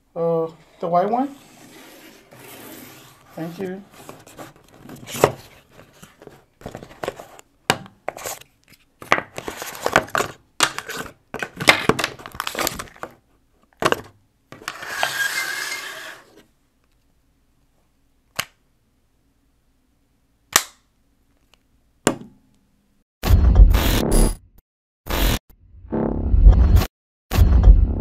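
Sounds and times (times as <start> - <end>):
cardboard rustling and scraping: 0.8 - 7.4, 8.1 - 13.2.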